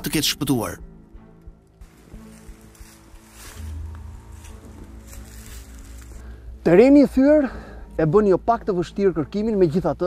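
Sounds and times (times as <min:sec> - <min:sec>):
music of sustained tones: 0:00.0 - 0:10.0
deep bass note: 0:03.7 - 0:05.1.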